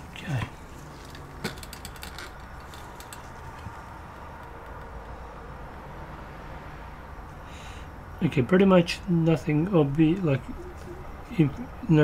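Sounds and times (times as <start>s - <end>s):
small clicks and taps: 1.1s - 5.8s.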